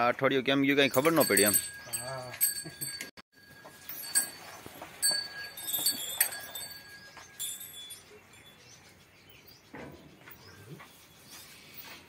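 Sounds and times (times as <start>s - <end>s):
metal pail clinking: 0.8s - 8.2s.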